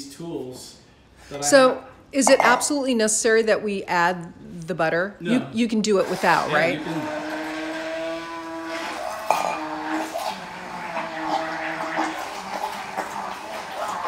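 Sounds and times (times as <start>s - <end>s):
immersion blender whining: 5.9s - 14.0s
blender head knocking on jug: 9.2s - 9.7s.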